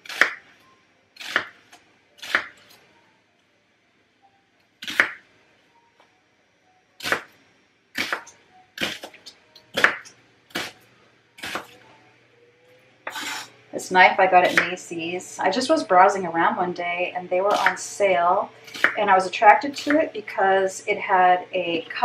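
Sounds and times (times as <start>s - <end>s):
knife slicing onion on wooden board: 1.2s - 1.5s, 2.2s - 2.6s, 4.8s - 5.2s, 7.0s - 7.3s, 8.0s - 10.8s, 11.4s - 11.8s, 13.0s - 13.5s.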